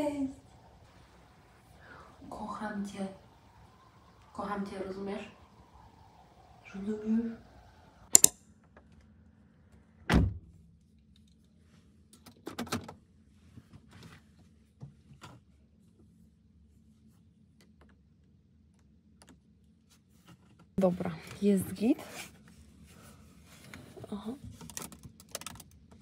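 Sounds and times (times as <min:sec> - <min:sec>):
faint low hum: 0:00.0 - 0:08.1.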